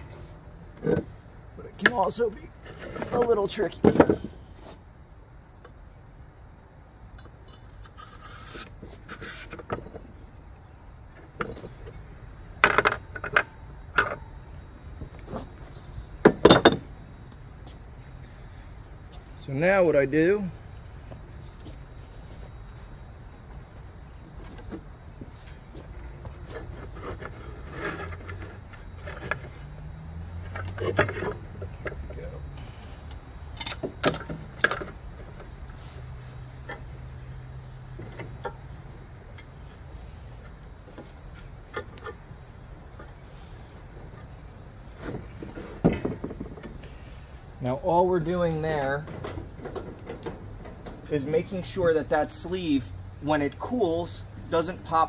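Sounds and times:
metal clinks and scrapes: 7.2s - 9.7s, 25.4s - 29.8s.

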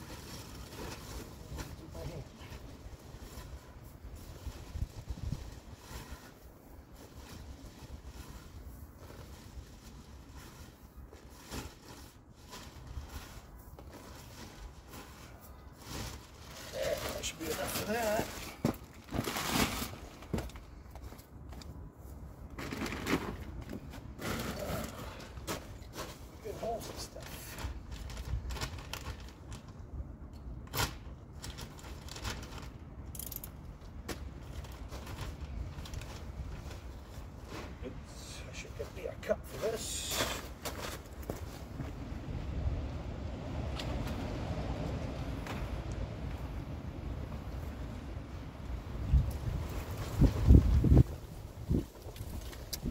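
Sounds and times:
soil pouring rustle: 0.0s - 20.2s
wind buffeting microphone: 4.0s - 5.9s, 41.9s - 52.9s.

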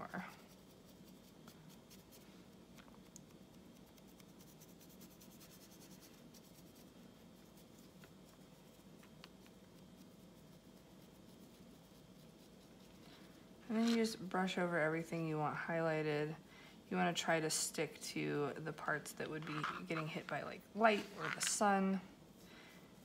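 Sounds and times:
faint steady hum: 0.0s - 23.0s
paintbrush scratching: 0.3s - 2.4s, 3.3s - 14.1s, 19.2s - 21.7s.

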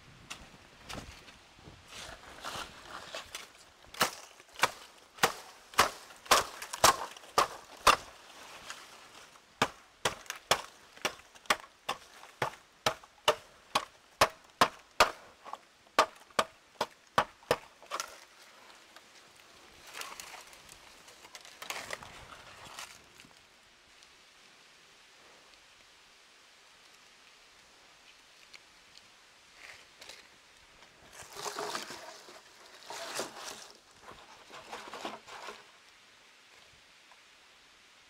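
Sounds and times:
blade chopping bamboo: 4.0s - 8.1s, 9.6s - 15.3s, 16.0s - 18.1s.

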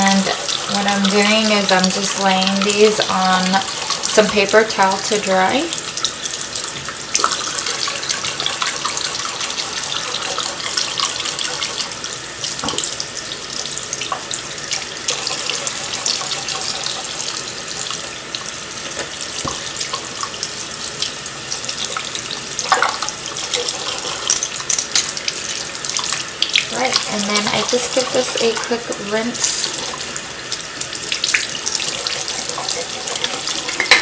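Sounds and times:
tap running into sink: 12.5s - 13.1s, 17.9s - 20.5s, 22.6s - 25.2s, 31.1s - 34.0s.

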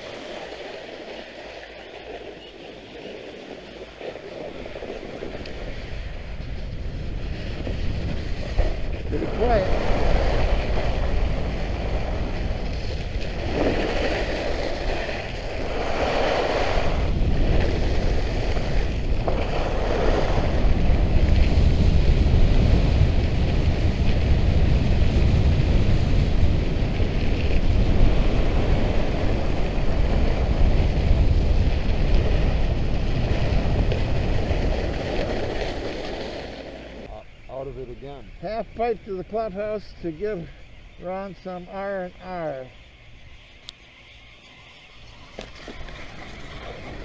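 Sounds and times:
wind on microphone: 0.0s - 47.0s
ski blades hissing over snow: 7.3s - 23.0s.

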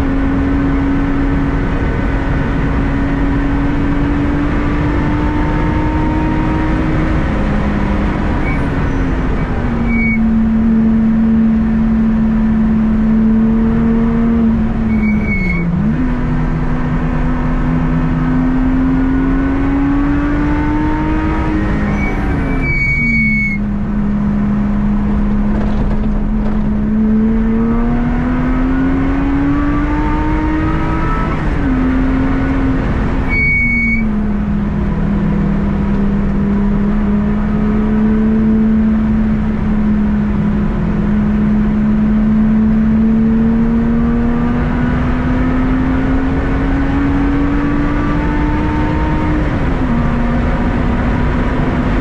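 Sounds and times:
car engine revving: 0.0s - 52.0s
brief high-pitched squeal: 8.4s - 10.3s, 14.9s - 15.7s, 21.9s - 23.6s, 33.3s - 34.1s.

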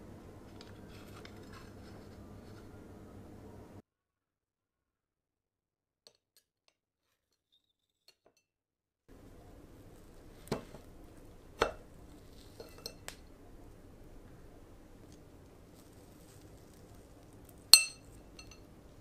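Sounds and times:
fork clinking on ceramic plate: 17.8s - 18.6s.

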